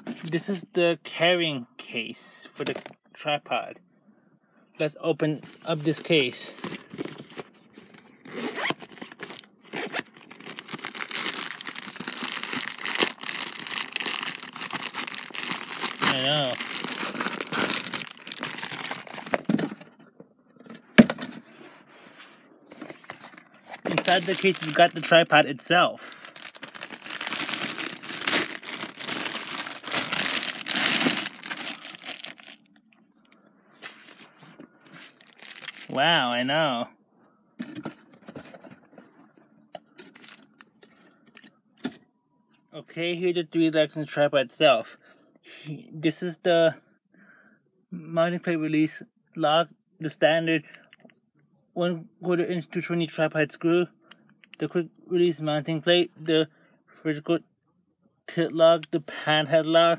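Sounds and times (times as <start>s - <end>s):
fabric case rustling and crinkling: 5.4s - 19.9s, 22.7s - 25.2s, 26.1s - 32.8s, 35.0s - 36.5s.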